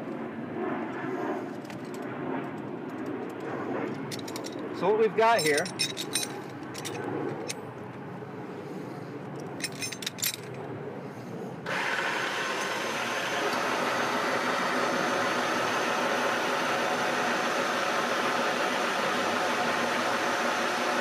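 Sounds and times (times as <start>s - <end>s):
metal hardware clinking: 5.3s - 7.6s, 9.5s - 10.6s
hoist motor whirring: 11.7s - 21.0s.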